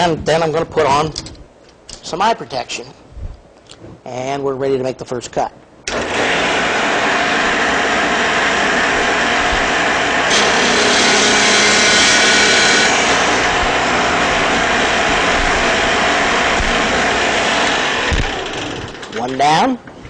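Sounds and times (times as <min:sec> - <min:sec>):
biscuit joiner running: 0:05.9 - 0:19.2.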